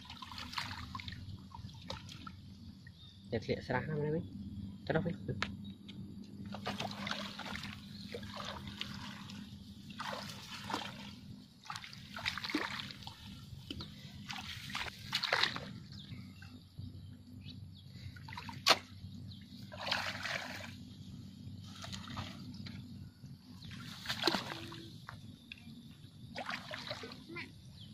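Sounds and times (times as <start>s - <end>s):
footsteps wading through water: 0.0s - 2.4s, 6.5s - 16.6s, 18.2s - 21.0s, 21.6s - 22.9s, 23.6s - 25.6s, 26.3s - 27.3s.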